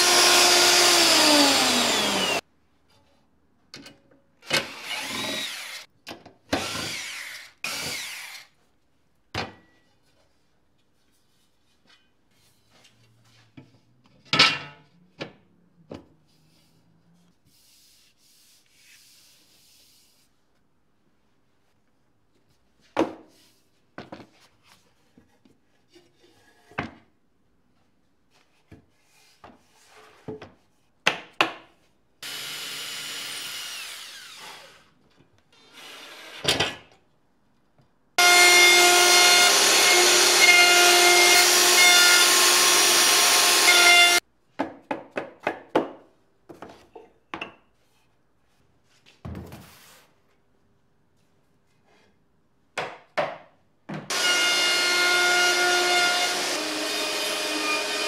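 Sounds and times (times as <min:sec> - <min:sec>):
cordless drill whine: 0:00.0 - 0:02.4
power tool running: 0:00.0 - 0:02.4, 0:32.2 - 0:34.7, 0:38.2 - 0:44.2, 0:54.1 - 0:58.0.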